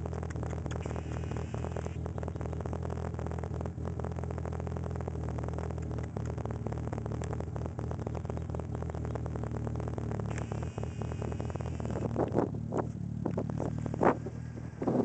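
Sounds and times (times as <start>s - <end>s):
rapid even ticking: 0.0s - 12.5s
car engine idling: 0.0s - 15.0s.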